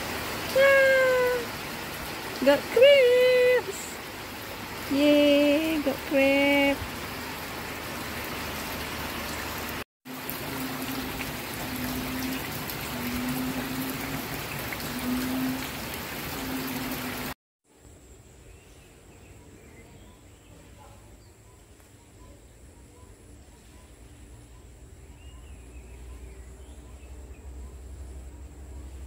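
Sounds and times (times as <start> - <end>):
water rushing: 0.0 - 17.4.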